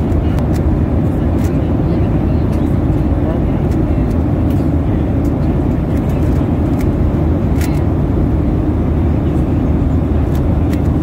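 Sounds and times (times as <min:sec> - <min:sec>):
airliner cabin engine noise: 0:00.0 - 0:11.0.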